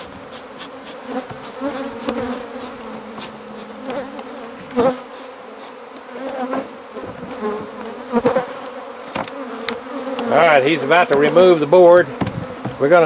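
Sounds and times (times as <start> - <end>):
honeybees buzzing: 0.0 - 13.0
sharp knocks: 12.2 - 12.8.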